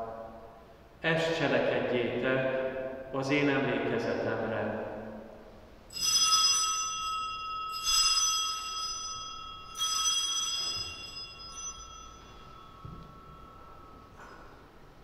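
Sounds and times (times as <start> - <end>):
bell ringing: 5.9 - 15.0.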